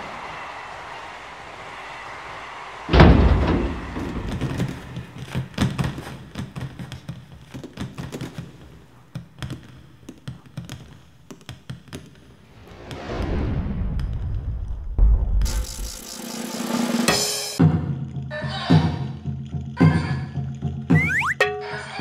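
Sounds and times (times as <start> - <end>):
heavy crash: 2.9 - 5.6, 12.4 - 16.2
oranges bouncing on wooden floor: 4.3 - 12.3.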